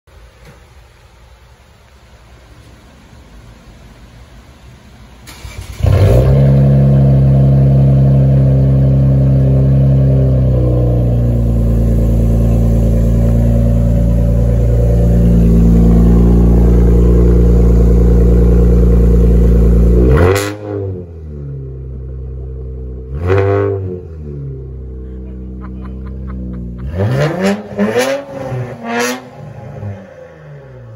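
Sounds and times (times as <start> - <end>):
car engine idling loudly: 7.0 - 20.0.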